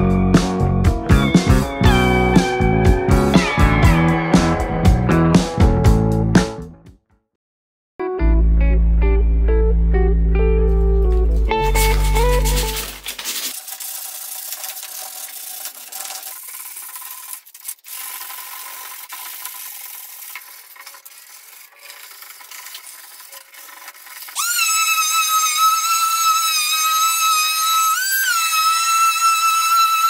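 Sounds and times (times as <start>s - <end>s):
sandpaper scraping wood: 11.4s - 14.1s, 14.8s - 30.0s.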